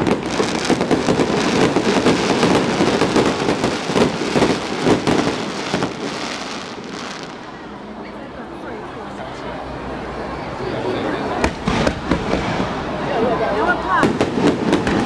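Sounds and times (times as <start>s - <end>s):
fireworks bangs and crackles: 0.0s - 7.6s, 11.3s - 15.0s.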